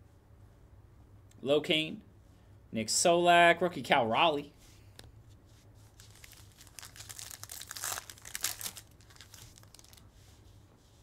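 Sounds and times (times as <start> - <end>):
foil wrapper crinkling and tearing: 5.9 - 10.0.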